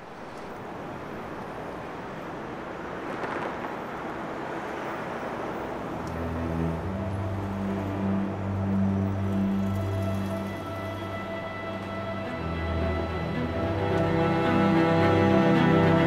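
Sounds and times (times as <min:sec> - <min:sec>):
steady rushing noise: 0:00.0 - 0:16.0
low sustained music notes: 0:05.7 - 0:16.0.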